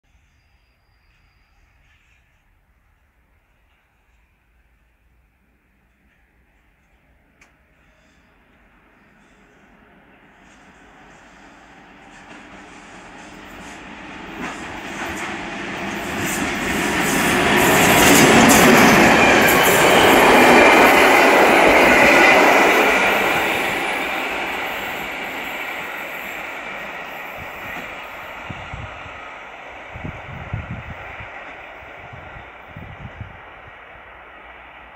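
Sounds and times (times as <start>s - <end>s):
train wheels on rails: 0.2s - 34.9s.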